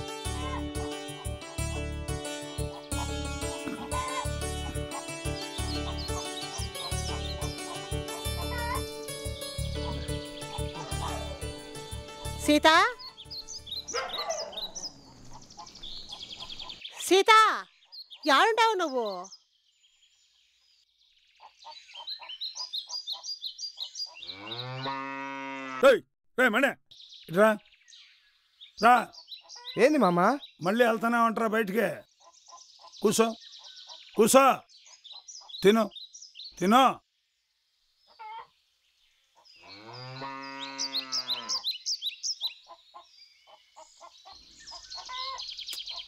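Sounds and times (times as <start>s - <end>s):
small bird chirping: 12.5s - 24.7s, 26.9s - 30.7s, 32.0s - 46.0s
cow mooing: 24.3s - 25.8s, 39.7s - 41.6s.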